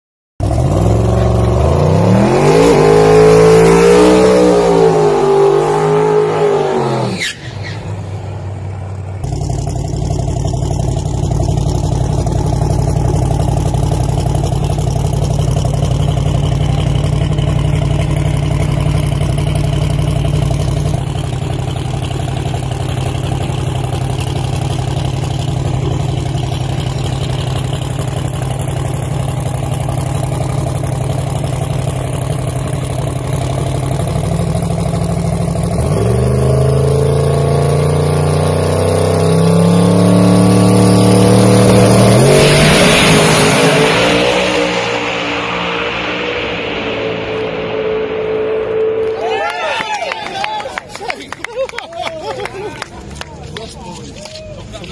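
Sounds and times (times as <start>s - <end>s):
drag car engine revving: 0.4s - 51.2s
engine lumpy idle: 8.2s - 35.8s.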